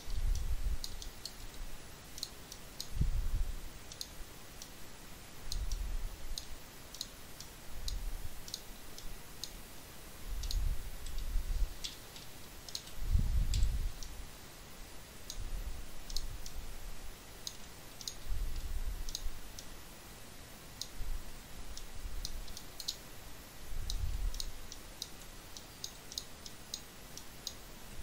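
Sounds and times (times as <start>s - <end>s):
computer mouse clicking: 0.3s - 1.6s, 2.2s - 2.9s, 3.9s - 4.7s, 5.5s - 9.6s, 10.4s - 14.2s, 16.1s - 16.6s, 17.4s - 18.2s, 19.0s - 19.7s, 21.8s - 23.0s, 23.8s - 27.6s.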